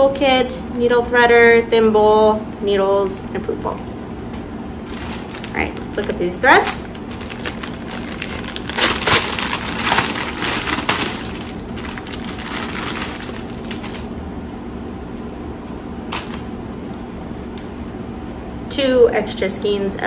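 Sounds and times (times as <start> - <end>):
packaging crinkling: 4.8 - 14.1, 16.1 - 16.4.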